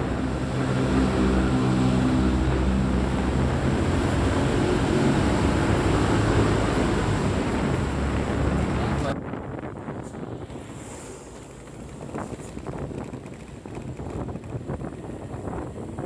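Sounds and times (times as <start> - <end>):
vehicle engine droning: 0.0 - 9.2
road and wind noise: 0.0 - 16.0.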